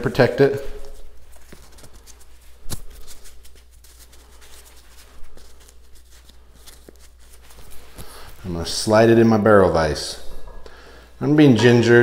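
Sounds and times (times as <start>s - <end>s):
soft rustling: 0.0s - 9.0s.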